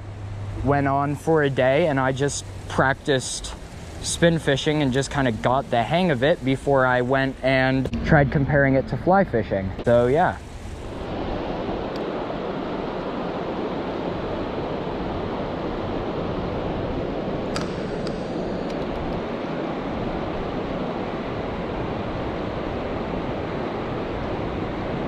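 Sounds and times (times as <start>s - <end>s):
water rushing over rocks: 0.6s - 7.9s.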